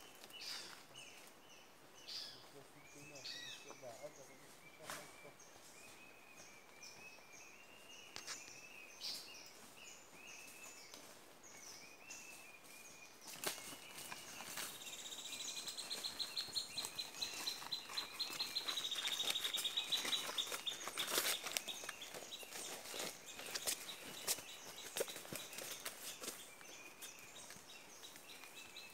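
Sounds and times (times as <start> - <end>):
footsteps crunching through leaves: 12.3 - 28.9.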